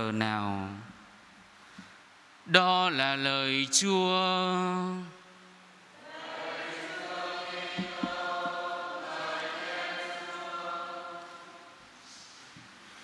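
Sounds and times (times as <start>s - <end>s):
congregation chanting: 6.0s - 12.0s
book knocking on wooden lectern: 7.8s - 8.6s.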